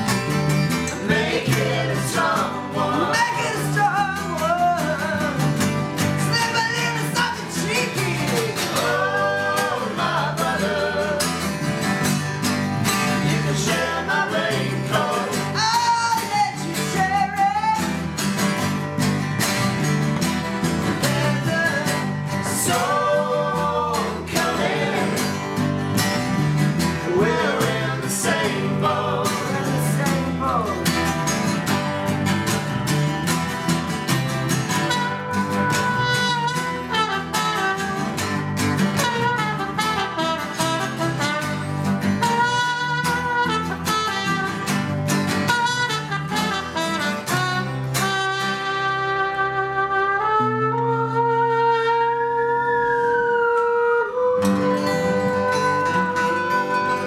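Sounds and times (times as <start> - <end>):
bass line: 0.0 - 48.4
acoustic guitars strumming: 0.0 - 57.0
man singing: 1.0 - 11.7, 13.1 - 18.0, 20.9 - 25.4, 27.0 - 31.1.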